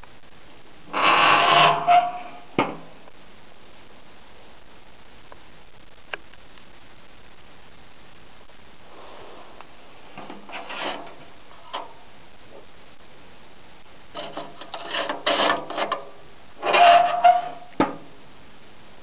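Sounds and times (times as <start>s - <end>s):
short metal squeak: 0.9s - 2.5s, 16.6s - 17.7s
metal scraping and rattling: 0.9s - 2.7s, 10.1s - 12.0s, 14.2s - 18.0s
postcard sliding on metal: 10.2s - 12.0s, 14.2s - 17.6s.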